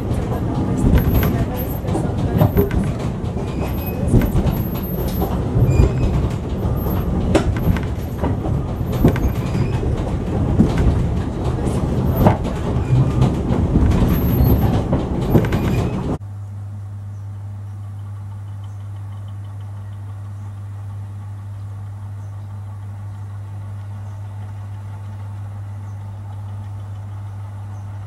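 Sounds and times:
train rumbling past: 0.0 - 16.2
wheels clicking over rails: 0.0 - 16.2.

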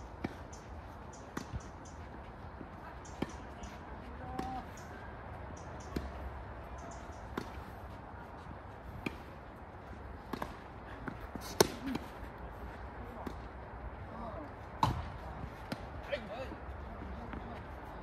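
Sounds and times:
tennis ball bouncing on court: 1.2 - 2.0, 3.0 - 4.9, 5.6 - 6.3, 6.9 - 7.8, 8.8 - 9.4, 10.2 - 12.1, 14.8 - 15.9
tennis ball hit by rackets: 7.2 - 7.8, 10.2 - 12.1, 14.8 - 15.9.

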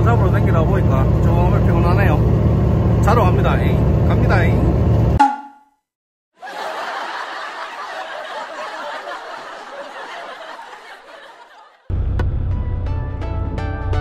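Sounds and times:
canned crowd laughter: 6.4 - 11.9.

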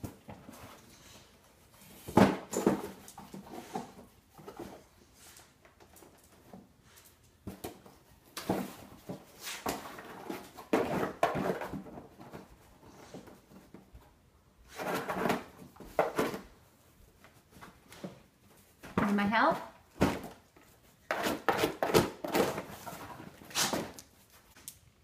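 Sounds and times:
dog scraping a cardboard box: 14.7 - 16.4, 21.1 - 24.0.

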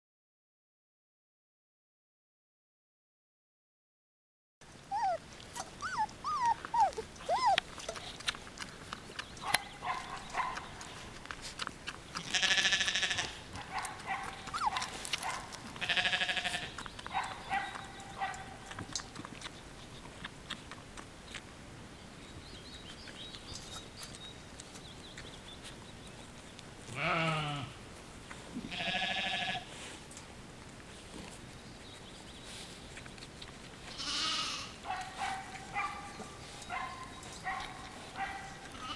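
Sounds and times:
puppies whining and squealing: 4.9 - 8.4, 14.2 - 15.4
puppies wailing: 4.9 - 19.2.

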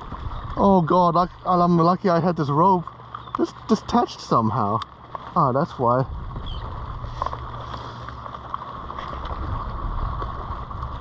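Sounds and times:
wind on microphone: 0.0 - 0.7, 6.0 - 7.8, 8.9 - 11.0
water lapping against kayak: 0.0 - 11.0
faint ticks: 2.5 - 5.4.

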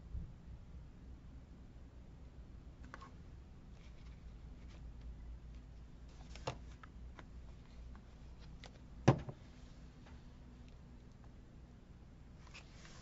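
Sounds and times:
low steady hum: 0.0 - 13.0
faint clicks and light taps: 10.0 - 11.4.

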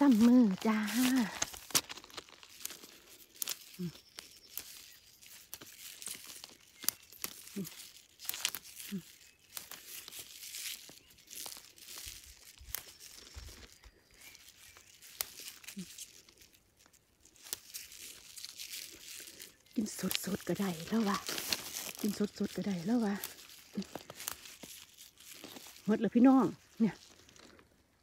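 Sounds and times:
plant stems snapping: 0.0 - 25.9
leaves tearing and rustling: 0.0 - 28.0.

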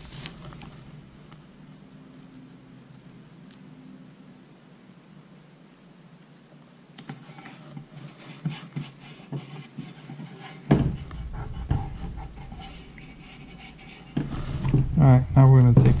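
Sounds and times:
hands rubbing tape: 7.0 - 14.8
heavy thump: 10.7 - 16.0.

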